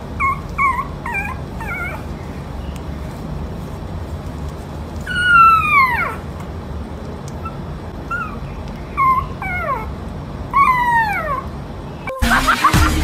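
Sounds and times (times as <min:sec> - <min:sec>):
puppy whimpering: 0:00.0 - 0:02.4, 0:05.0 - 0:06.4, 0:07.4 - 0:11.6.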